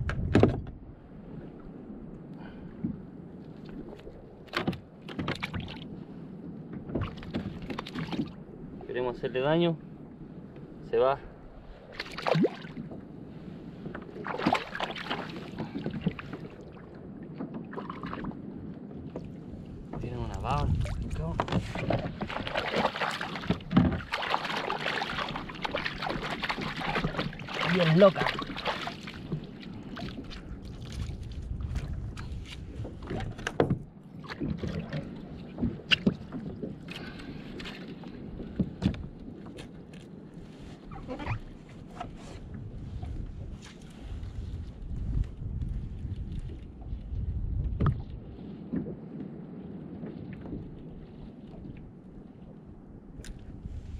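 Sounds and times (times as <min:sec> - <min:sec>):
low wind: 0:00.0 - 0:53.9
water splashing against kayak: 0:00.0 - 0:53.9.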